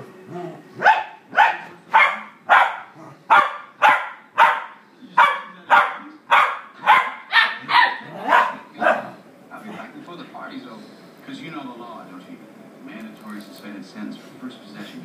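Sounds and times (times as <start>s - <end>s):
dog barking: 0.8s - 9.2s.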